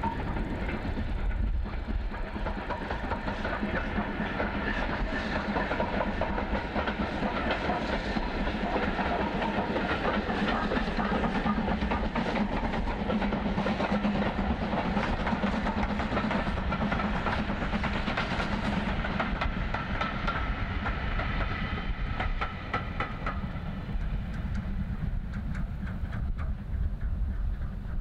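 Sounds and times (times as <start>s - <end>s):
steam locomotive running past: 0.0s - 28.0s
wheels clicking over rail joints: 22.2s - 28.0s.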